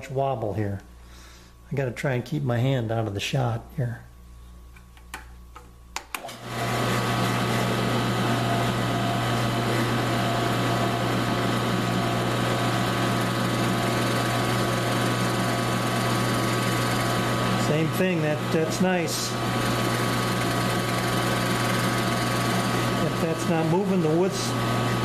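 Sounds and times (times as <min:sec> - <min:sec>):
drill press motor running: 0:06.2 - 0:25.0
drill bit boring into wood: 0:06.4 - 0:25.0.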